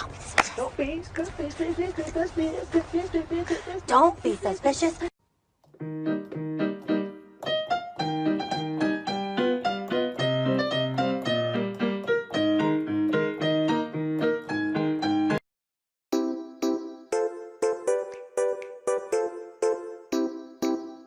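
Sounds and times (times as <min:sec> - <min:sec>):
bouncy piano music: 0:05.7 - 0:15.4, 0:16.1 - 0:21.0.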